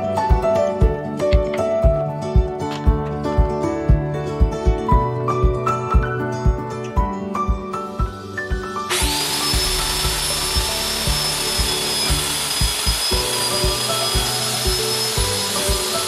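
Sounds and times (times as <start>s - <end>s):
background music with beat: 0.0s - 16.0s
circular saw cutting metal: 8.9s - 16.0s.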